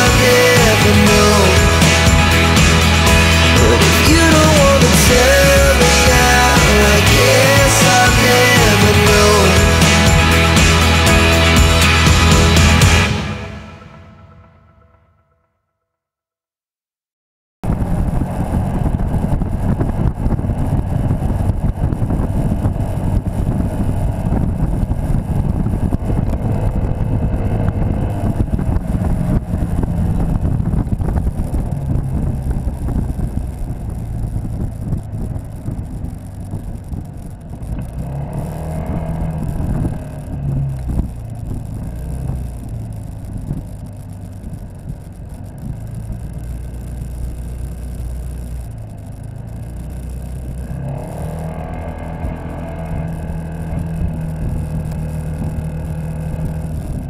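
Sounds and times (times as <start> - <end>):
scooter engine running: 0.0 - 14.8, 17.6 - 57.0
wind buffeting microphone: 17.6 - 46.3.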